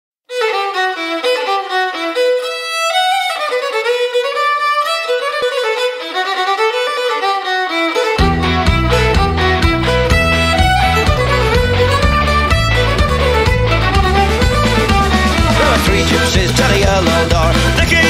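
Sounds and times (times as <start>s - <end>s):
solo fiddle folk melody: 0.3s - 18.0s
band with bass and beat: 8.1s - 18.0s.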